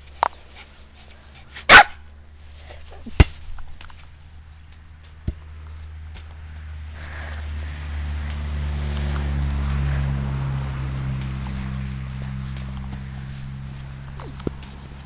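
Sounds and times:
steady low rumble: 0.0s - 15.0s
puppy barking: 1.6s - 2.0s.

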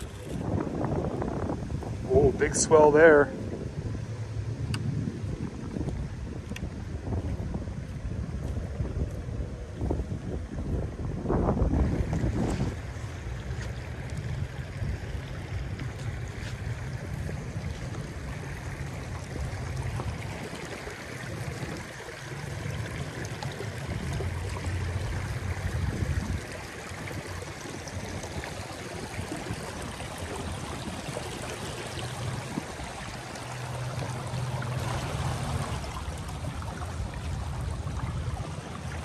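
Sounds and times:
creek water running over rocks: 0.0s - 3.3s, 11.2s - 39.0s.

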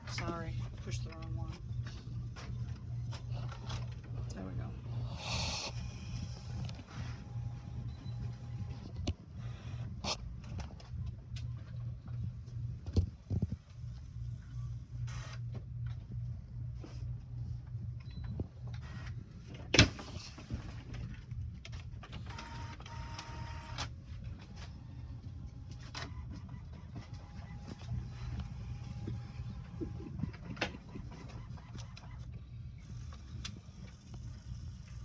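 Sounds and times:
printer low hum: 0.0s - 35.0s
printer whirring: 4.8s - 10.2s, 22.1s - 35.0s.

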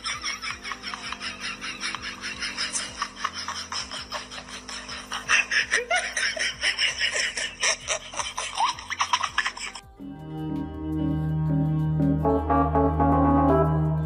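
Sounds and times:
person laughing: 0.0s - 9.9s.

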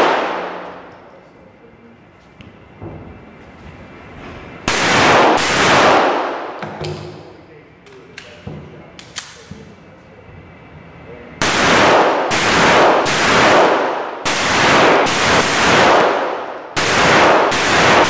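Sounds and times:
pistol shots echoing indoors: 0.0s - 1.1s, 4.6s - 7.4s, 11.4s - 18.0s.

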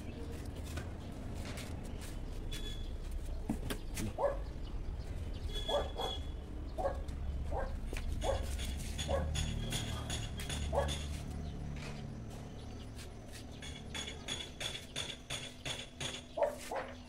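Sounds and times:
dog barking: 4.1s - 4.6s, 5.6s - 8.5s, 9.1s - 11.0s, 16.4s - 17.0s.

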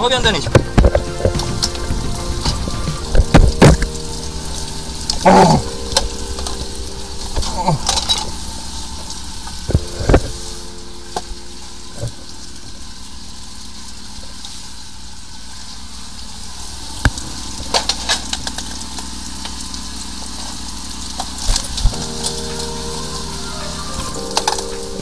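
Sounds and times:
water spraying hiss: 0.0s - 25.0s
low engine hum: 0.4s - 11.2s.

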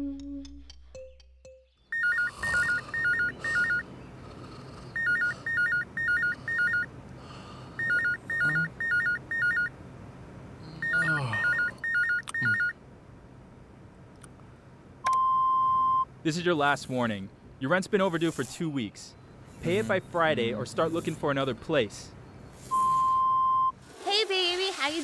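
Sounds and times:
electronic telephone ringing: 1.9s - 3.9s, 5.0s - 6.9s, 7.8s - 9.7s, 10.8s - 12.7s.

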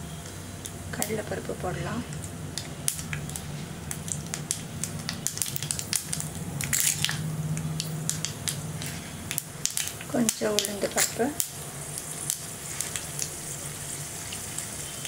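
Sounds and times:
oil sizzling: 0.0s - 15.0s
seeds popping in hot oil: 0.0s - 15.0s.

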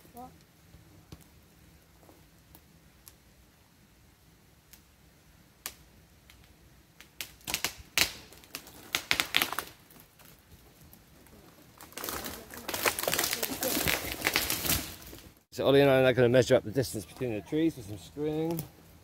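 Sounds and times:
crackling rustle: 0.0s - 15.5s, 16.8s - 19.0s
sharp clicks and cracks: 5.6s - 10.4s, 11.8s - 15.4s, 18.4s - 18.7s.

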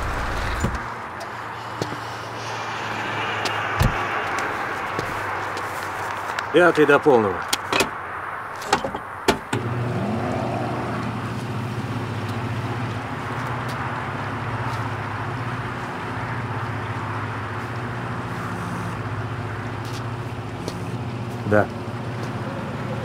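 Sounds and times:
rush of fuel: 1.3s - 6.5s.

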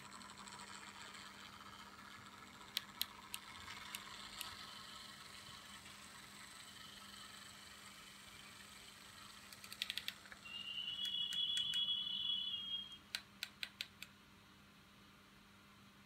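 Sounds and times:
model locomotive clicks: 0.0s - 7.9s, 8.6s - 10.4s, 11.0s - 11.9s.

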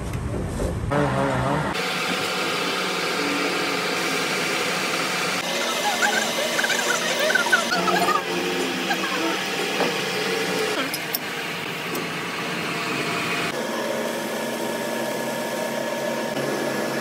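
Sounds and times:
metal lathe whirring: 1.8s - 14.3s.

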